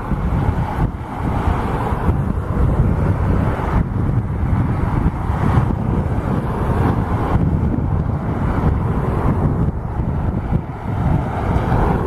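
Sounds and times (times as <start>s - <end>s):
jet engines rumbling: 0.0s - 12.0s
wind buffeting microphone: 0.0s - 12.0s.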